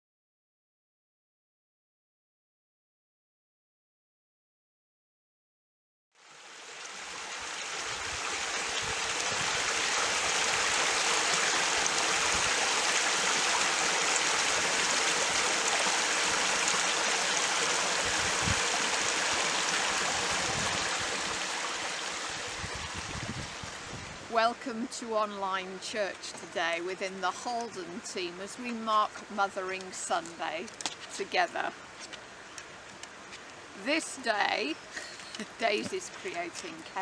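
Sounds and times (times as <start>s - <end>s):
stream flowing over stones: 6.2s - 24.0s, 24.6s - 37.0s.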